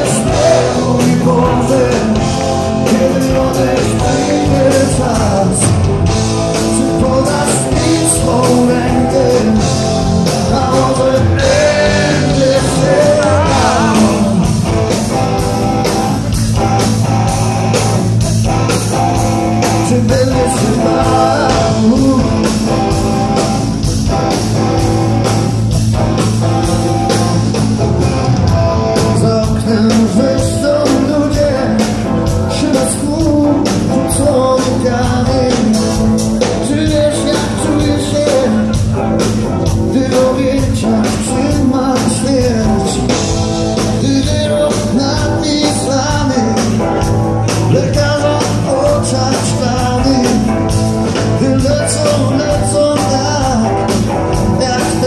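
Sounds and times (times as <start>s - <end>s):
drums: 0.0s - 55.0s
electric guitars: 0.0s - 55.0s.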